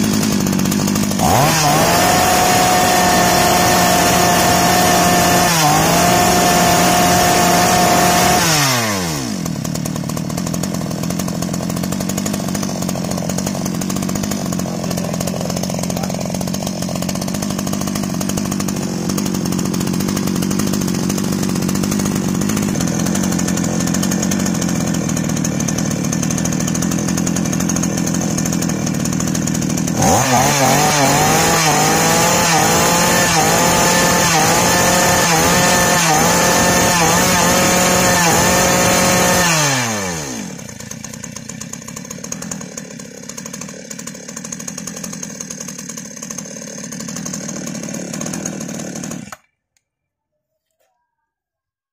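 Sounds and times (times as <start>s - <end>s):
chainsaw idling: 0.0s - 49.5s
chainsaw with wobbling pitch: 0.0s - 49.5s.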